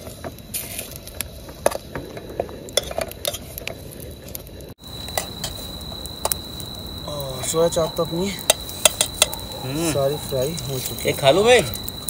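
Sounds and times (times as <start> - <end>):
food sizzling in oil: 4.7 - 12.0.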